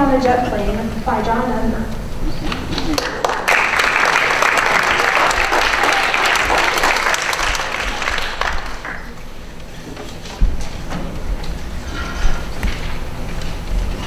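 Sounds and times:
audience applauding: 0:02.5 - 0:09.4.

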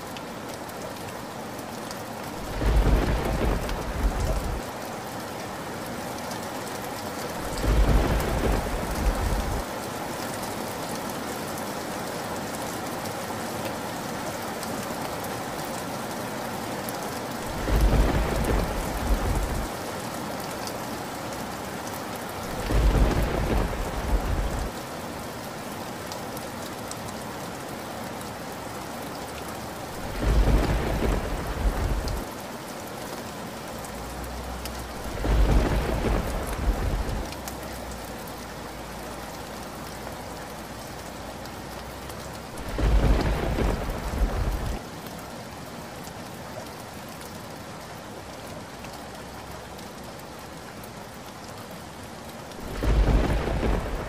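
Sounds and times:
steady rain: 0:00.0 - 0:54.0
thunder rolling: 0:02.5 - 0:04.6, 0:07.6 - 0:09.6, 0:17.5 - 0:19.7, 0:22.6 - 0:24.7, 0:30.0 - 0:32.3, 0:35.0 - 0:37.3, 0:42.6 - 0:44.8, 0:52.6 - 0:54.0.

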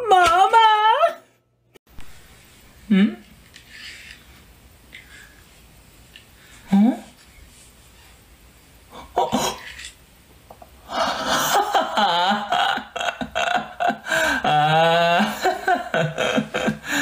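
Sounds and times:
man laughing: 0:10.9 - 0:17.0
man vocalising: 0:12.4 - 0:17.0.

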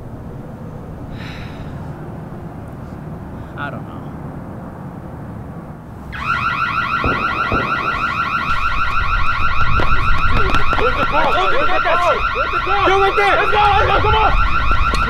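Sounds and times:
car alarm warbling: 0:06.1 - 0:15.0.

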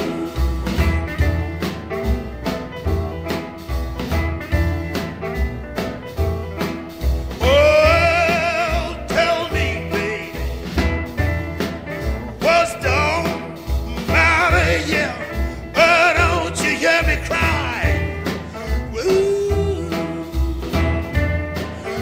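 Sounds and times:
bass and drums: 0:00.0 - 0:22.0
blues guitar riff: 0:00.0 - 0:22.0
person singing wordless howls: 0:18.8 - 0:20.8.

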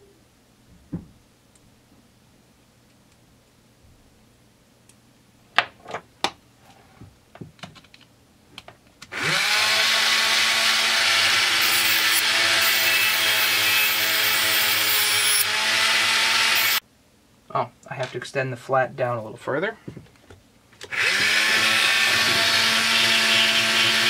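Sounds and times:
cutoff wheel grinding steel: 0:09.2 - 0:16.8
micromotor whining and humming: 0:09.2 - 0:16.8.

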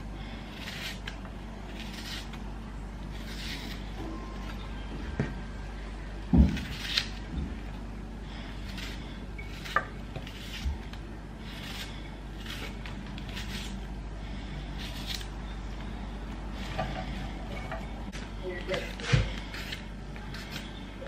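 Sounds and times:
knife slicing onion: 0:00.5 - 0:02.4, 0:03.1 - 0:04.0, 0:06.3 - 0:07.2, 0:08.5 - 0:13.9, 0:18.7 - 0:20.8.

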